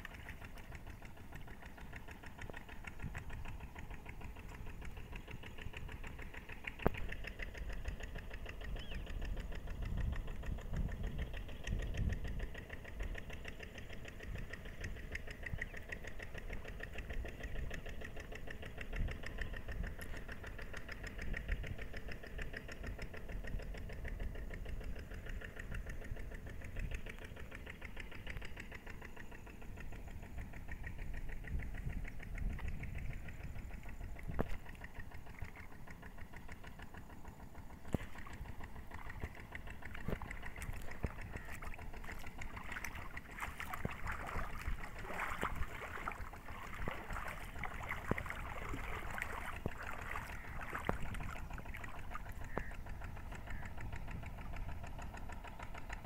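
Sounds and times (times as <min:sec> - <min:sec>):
engine running with rapid pulse: 0:00.0 - 0:56.0
low rumble: 0:23.0 - 0:55.8.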